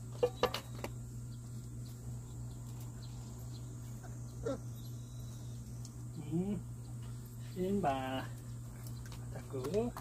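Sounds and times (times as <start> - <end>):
steady low hum: 0.0 - 10.0
puppy whimpering: 4.0 - 5.4.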